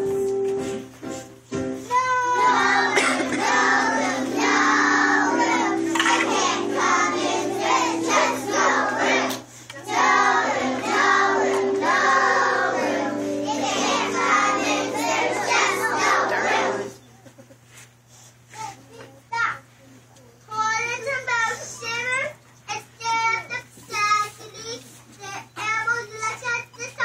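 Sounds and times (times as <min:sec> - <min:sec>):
accompaniment music: 0:00.0 - 0:17.0
children singing together: 0:02.0 - 0:17.0.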